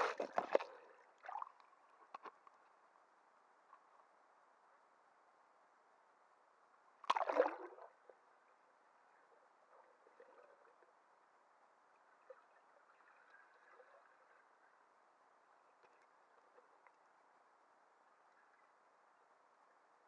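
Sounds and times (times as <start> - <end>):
water splash: 0.0 - 1.5, 7.1 - 7.8
underwater bubbling: 0.0 - 2.2, 7.1 - 8.1, 9.2 - 11.0, 12.0 - 14.8.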